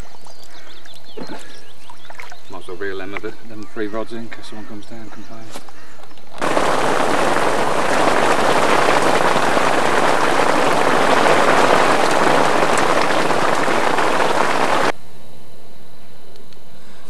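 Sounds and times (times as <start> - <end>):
heavy rain on water: 6.4 - 14.9.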